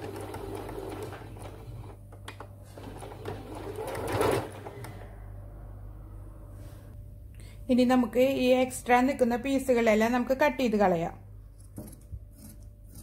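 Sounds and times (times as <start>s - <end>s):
electric sewing machine running: 0.0s - 2.0s, 2.7s - 5.0s.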